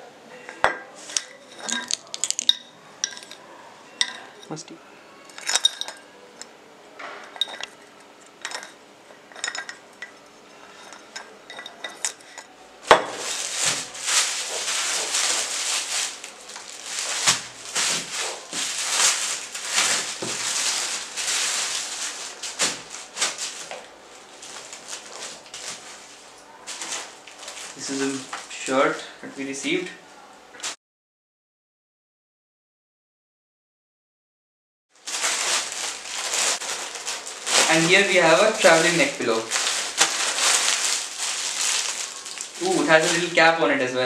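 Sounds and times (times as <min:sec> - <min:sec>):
plastic packaging crinkling: 0:01.0 - 0:03.4, 0:05.3 - 0:06.1, 0:07.3 - 0:28.6, 0:35.0 - 0:43.9.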